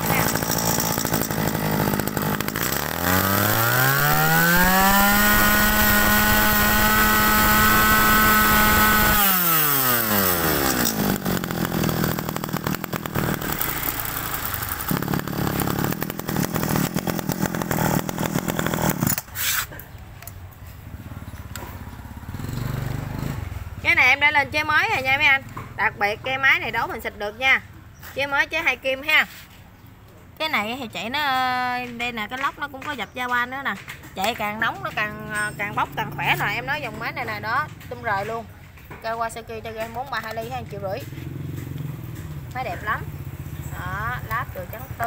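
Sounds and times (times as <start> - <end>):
brush cutter engine revving: 0.0 - 19.8.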